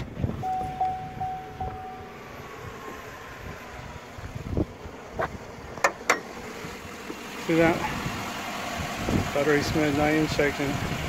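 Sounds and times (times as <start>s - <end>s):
wind on microphone: 0.0s - 2.0s
car engine idling: 0.0s - 11.0s
car door-open chime: 0.4s - 2.2s.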